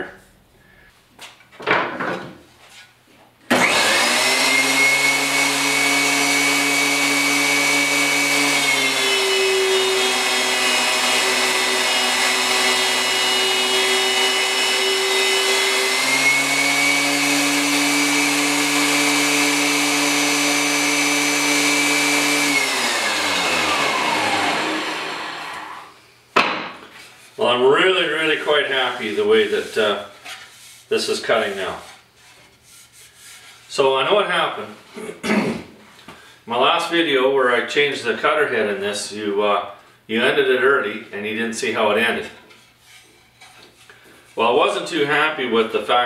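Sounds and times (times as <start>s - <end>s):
thickness planer whine: 3.5s - 26.0s
planer cutting board: 3.5s - 26.6s.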